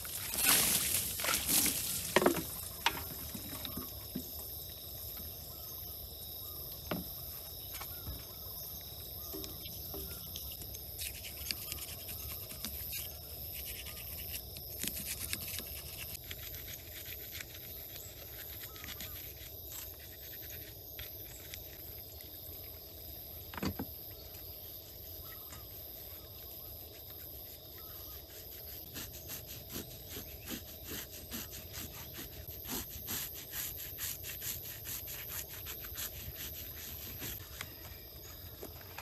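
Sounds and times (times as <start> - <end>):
water splash: 0.0 - 2.2
high-pitched insect drone: 0.0 - 39.0.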